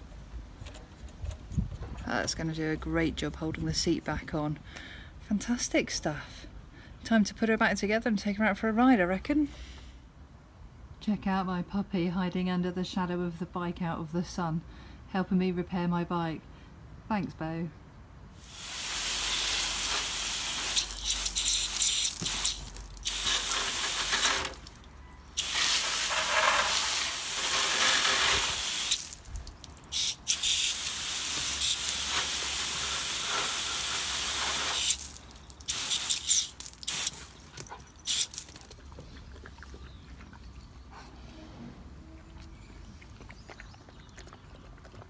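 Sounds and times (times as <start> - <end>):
hose spray gun jetting water: 18.4 - 38.6.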